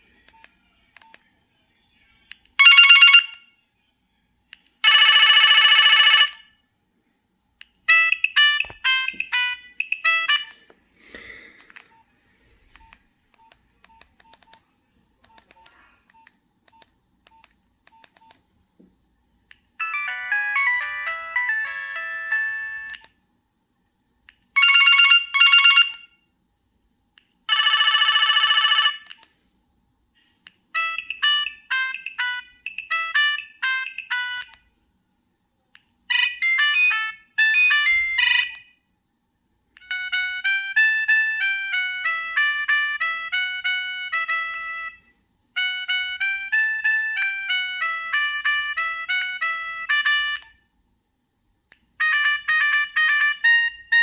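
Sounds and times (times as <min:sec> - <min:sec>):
monophonic phone ringtones: 0:02.6 - 0:03.5, 0:04.8 - 0:06.5, 0:07.9 - 0:10.6, 0:19.8 - 0:23.1, 0:24.6 - 0:26.2, 0:27.5 - 0:29.1, 0:30.8 - 0:34.6, 0:36.1 - 0:38.7, 0:45.6 - 0:50.4, 0:52.0 - 0:54.0.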